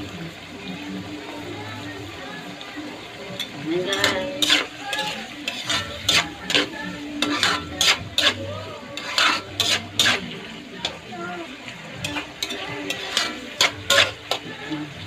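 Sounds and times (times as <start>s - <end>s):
sauce sizzling: 0.0s - 15.0s
spatula scraping metal wok: 3.2s - 15.0s.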